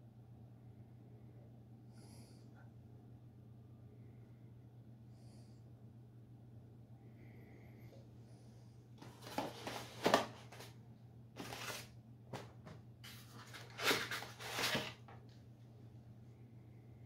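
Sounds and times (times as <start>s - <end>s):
faint steady hum: 0.0s - 17.0s
plastic bag rustling and crinkling: 9.0s - 10.8s, 11.4s - 11.9s, 13.0s - 15.1s.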